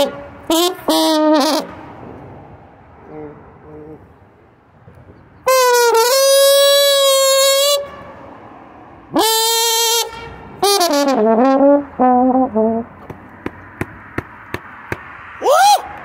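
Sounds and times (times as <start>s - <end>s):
slide trombone playing: 0.0s - 1.8s, 5.4s - 8.1s, 9.1s - 12.9s.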